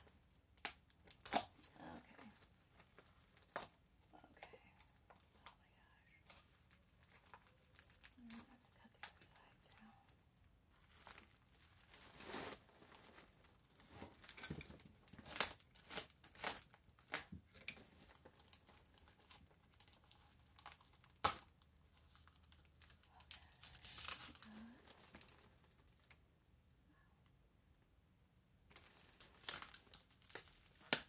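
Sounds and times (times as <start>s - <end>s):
bubble wrap crinkling: 0.0s - 26.3s, 28.7s - 31.0s
packing tape pulled and torn: 0.5s - 1.7s, 14.1s - 25.5s, 28.7s - 31.0s.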